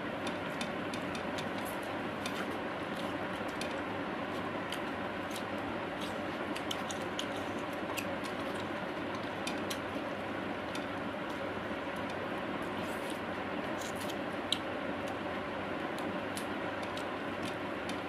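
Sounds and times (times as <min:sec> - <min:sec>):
chewing and lip smacks: 0:04.7 - 0:08.7.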